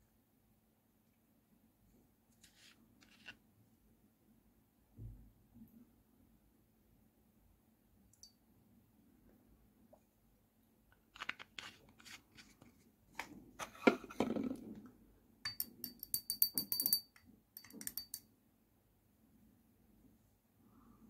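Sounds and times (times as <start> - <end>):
objects knocking on tabletop: 13.8 - 14.7
stirring rod clinking glass: 15.4 - 18.3.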